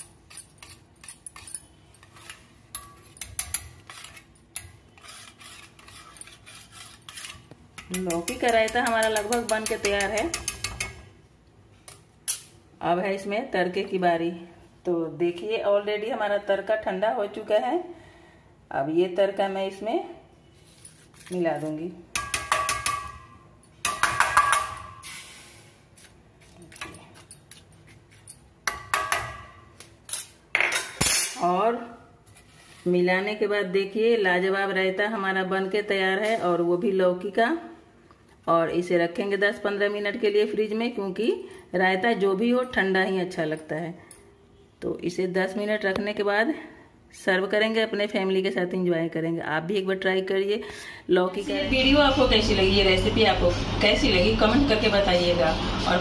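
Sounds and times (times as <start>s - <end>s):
whisk scraping in metal bowl: 0.6s - 11.1s.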